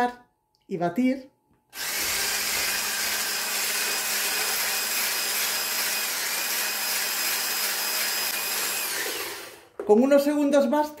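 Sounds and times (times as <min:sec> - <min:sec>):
electric hand blender whisking: 0:01.8 - 0:09.8.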